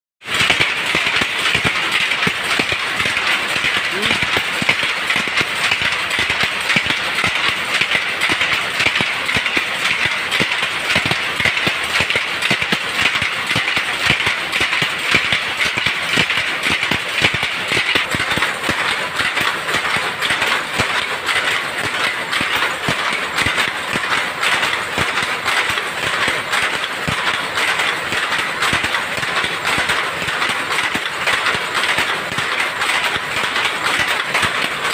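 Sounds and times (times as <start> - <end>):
power loom clattering: 0.2 - 34.9.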